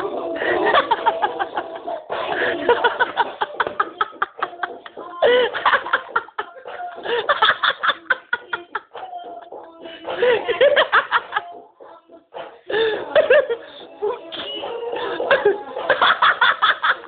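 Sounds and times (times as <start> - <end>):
people laughing and snickering: 0.0 - 17.0.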